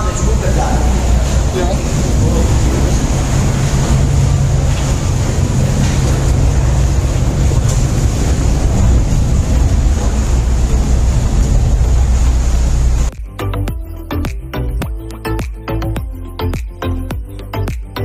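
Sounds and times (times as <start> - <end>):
wind buffeting microphone: 0.0 - 13.1
boat engine running: 0.0 - 14.0.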